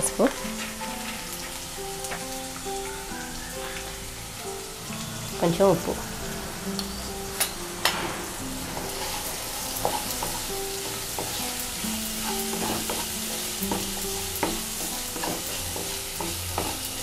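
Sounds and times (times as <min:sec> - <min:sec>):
onions sizzling in hot oil: 0:00.0 - 0:17.0
wooden spatula scraping a pan: 0:08.5 - 0:17.0.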